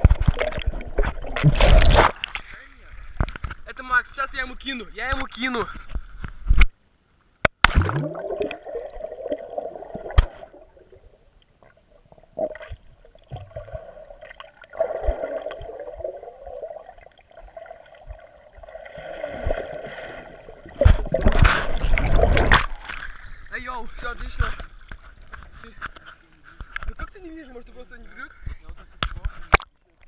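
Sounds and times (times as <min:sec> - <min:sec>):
loud water splashing: 0:00.3 - 0:02.4
underwater gurgling and bubbling: 0:07.8 - 0:11.2, 0:12.1 - 0:22.8.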